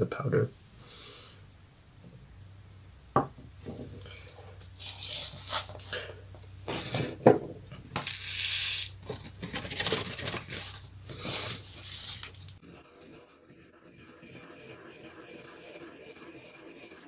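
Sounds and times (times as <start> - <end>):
stiff paper rustling and scraping: 4.6 - 7.2, 8.9 - 12.6
powder sliding hiss: 8.0 - 9.0, 10.5 - 12.6.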